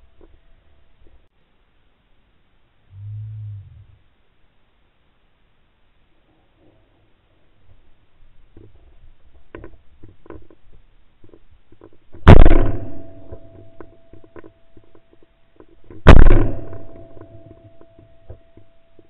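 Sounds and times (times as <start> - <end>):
shotgun shots with echo: 12.3 - 13.6, 16.0 - 17.4.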